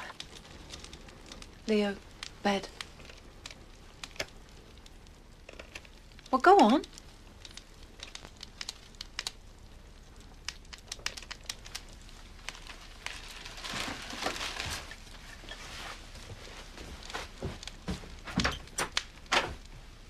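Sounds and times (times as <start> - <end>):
crinkling rustles: 0.0 - 20.0
faint clicks: 10.0 - 13.4.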